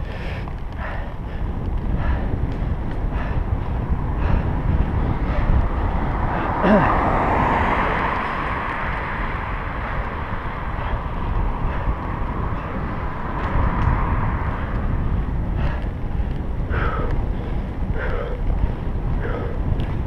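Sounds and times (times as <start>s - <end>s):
wind rumbling on microphone: 0.0s - 20.0s.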